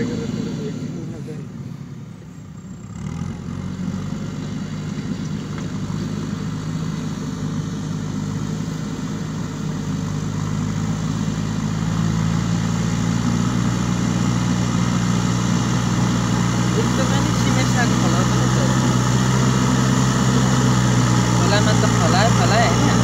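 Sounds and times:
backhoe diesel engine running: 0.0 - 23.0
loader bucket pushing soil: 2.9 - 23.0.

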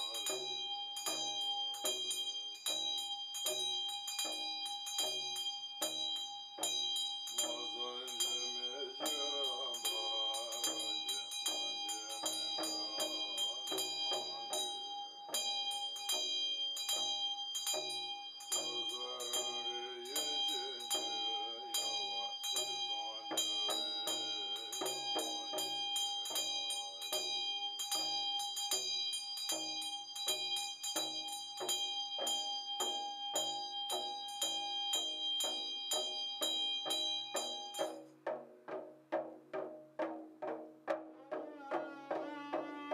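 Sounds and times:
man chanting: 0.0 - 0.4, 7.4 - 15.4, 18.5 - 27.4, 41.2 - 42.9
hand bell ringing: 0.0 - 38.1
hand drum rattling: 34.0 - 42.9.

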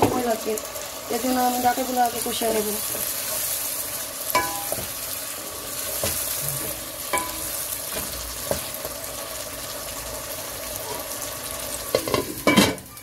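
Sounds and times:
vegetables sizzling in oil: 0.0 - 13.0.

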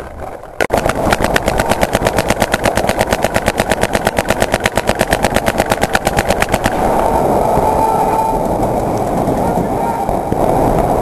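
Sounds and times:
paintball marker rapid firing: 0.6 - 7.0.

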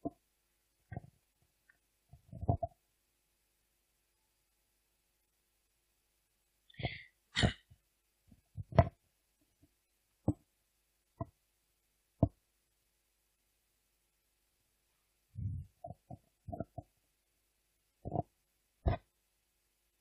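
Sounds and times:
dull thumps and bumps: 2.2 - 2.7, 8.6 - 9.0.

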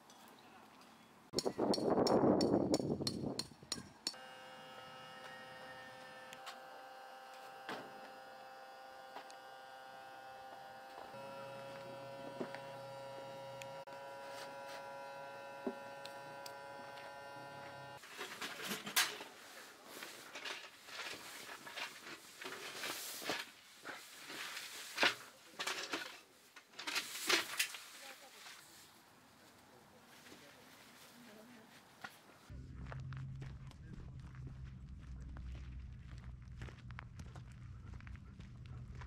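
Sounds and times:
electrical hum of held tones: 4.2 - 18.0
rustling with clicks and knocks: 18.0 - 28.6.

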